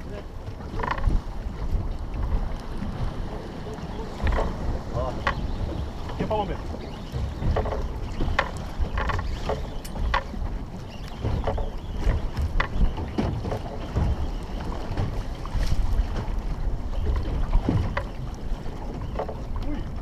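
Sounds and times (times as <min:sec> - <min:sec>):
sea water slapping boat: 0:00.0 - 0:20.0
short knocks and splashes: 0:00.0 - 0:20.0
wind buffeting microphone: 0:00.0 - 0:20.0.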